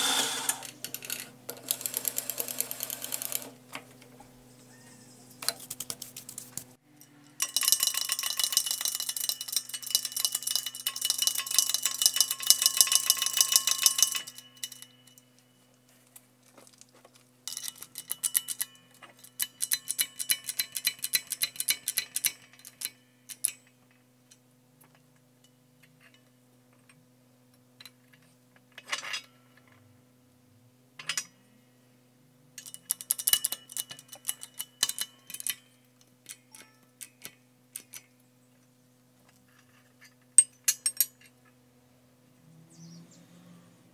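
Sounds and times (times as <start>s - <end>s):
faint steady hum: 0.0s - 43.9s
rapid metallic clicking: 7.4s - 15.3s.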